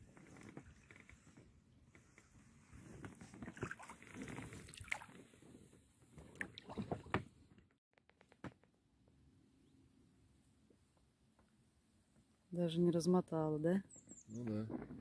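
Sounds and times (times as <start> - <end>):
water sounds: 3.4 - 5.3.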